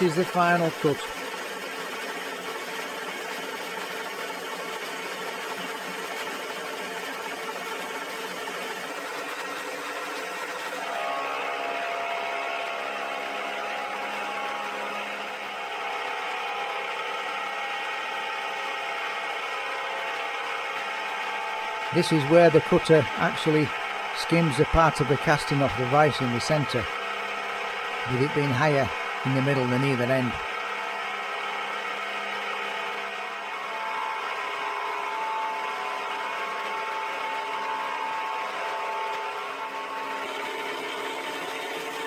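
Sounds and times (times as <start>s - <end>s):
milling machine whine and hum: 0.0s - 42.0s.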